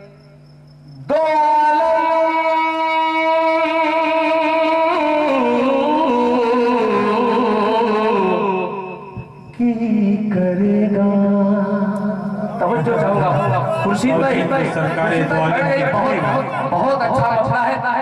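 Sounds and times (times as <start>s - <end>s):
man singing into a microphone: 1.0s - 14.3s.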